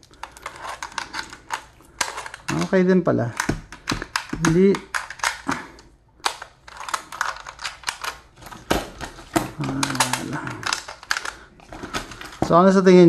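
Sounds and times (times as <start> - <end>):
cartridges clicking into magazine: 0.3 - 8.7.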